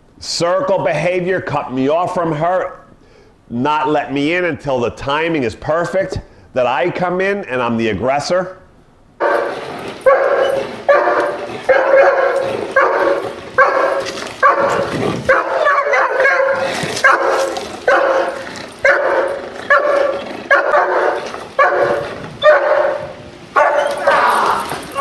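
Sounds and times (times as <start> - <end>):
dog barking: 9.2 - 25.0.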